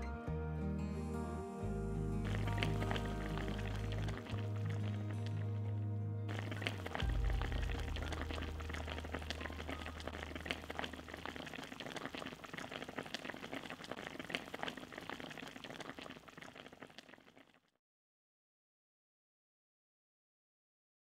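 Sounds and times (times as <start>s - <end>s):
low drone: 0.7s - 10.4s
braising liquid bubbling and popping: 2.2s - 17.8s.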